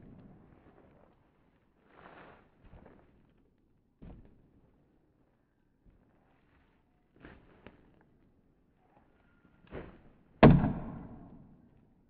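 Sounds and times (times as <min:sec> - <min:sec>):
dull thump: 0:10.4 - 0:11.4.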